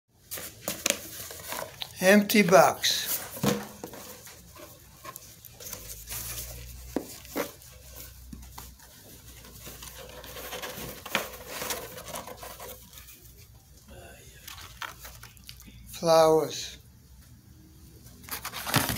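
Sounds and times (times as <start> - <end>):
cardboard rustling and scraping: 0.2 - 1.8, 2.8 - 13.6, 18.2 - 18.9.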